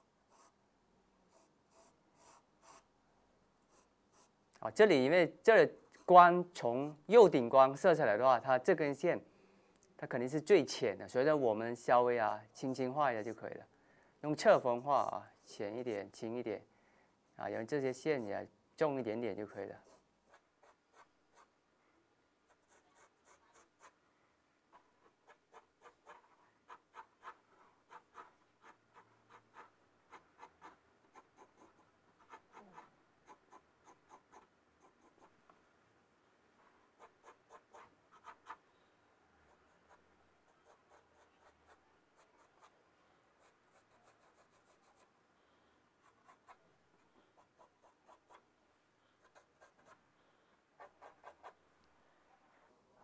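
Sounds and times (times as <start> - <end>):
pencil scratching on paper: 0.0 - 0.6, 1.3 - 2.9, 3.7 - 4.3, 19.6 - 21.5, 22.4 - 24.0, 24.7 - 35.4, 37.0 - 38.6, 39.5 - 42.8, 43.4 - 45.1, 46.0 - 46.6, 47.3 - 48.4, 49.2 - 50.0, 50.8 - 51.6.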